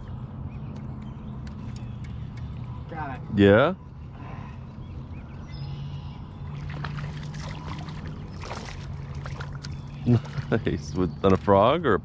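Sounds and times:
fish splashing at water surface: 0:06.6 - 0:10.6.

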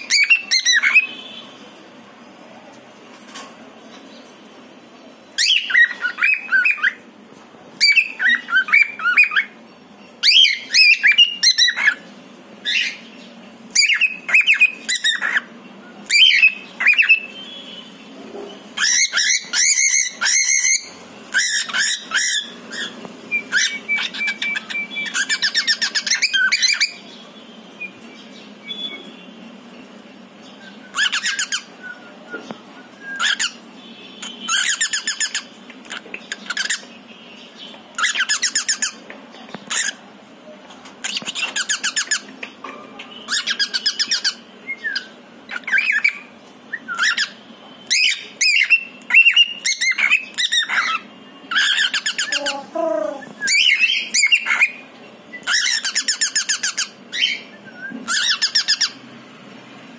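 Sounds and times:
cockatiel chirping calls: 0:00.0 - 0:01.2, 0:05.4 - 0:07.0, 0:07.8 - 0:09.6, 0:10.2 - 0:12.0, 0:12.6 - 0:13.0, 0:13.7 - 0:17.3, 0:18.8 - 0:27.1, 0:30.8 - 0:33.6, 0:34.2 - 0:36.9, 0:37.9 - 0:39.0, 0:39.6 - 0:40.0, 0:41.0 - 0:42.4, 0:43.3 - 0:54.8, 0:55.4 - 0:59.0
cockatiel screeching: 0:18.8 - 0:22.9, 0:58.1 - 0:59.0.

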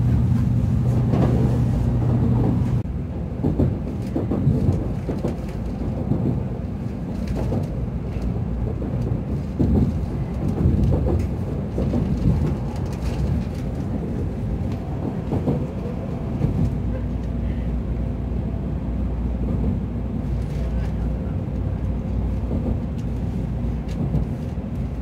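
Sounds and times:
train rumble inside passenger car: 0:00.0 - 0:25.0.

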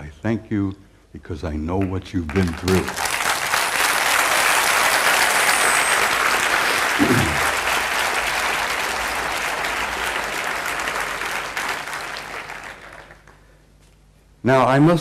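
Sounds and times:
large audience applauding: 0:01.8 - 0:13.6.

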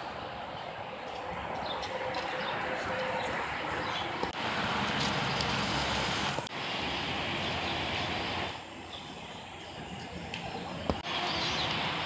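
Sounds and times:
outdoor rushing noise: 0:00.0 - 0:12.0.

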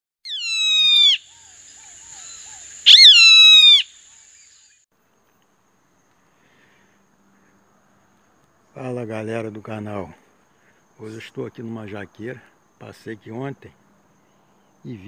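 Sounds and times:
bird of prey screaming: 0:00.3 - 0:03.9.

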